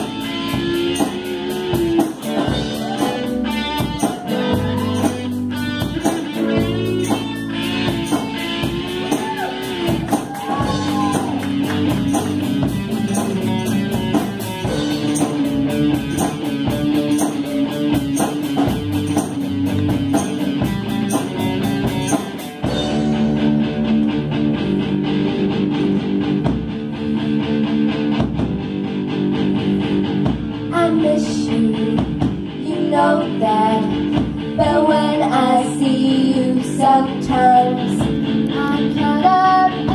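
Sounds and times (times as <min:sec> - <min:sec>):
live rock band: 0:00.0 - 0:39.9
group of young singers: 0:34.6 - 0:39.9.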